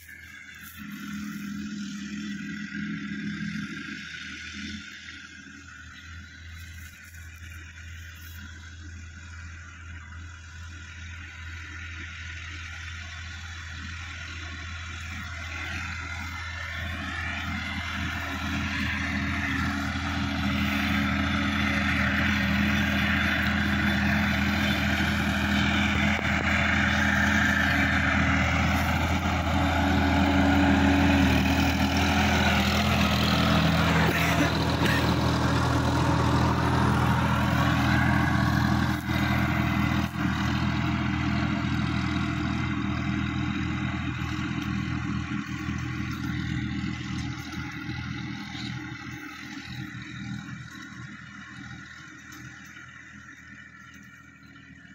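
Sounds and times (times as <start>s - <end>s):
tractor diesel engine running: 0.0s - 54.9s.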